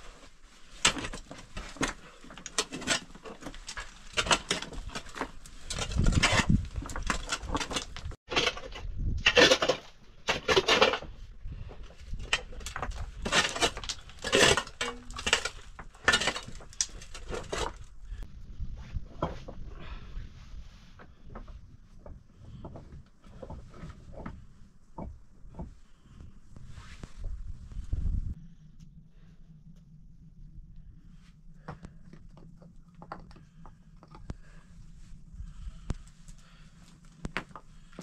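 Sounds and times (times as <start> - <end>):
shovel scraping dirt: 13.1 - 17.8.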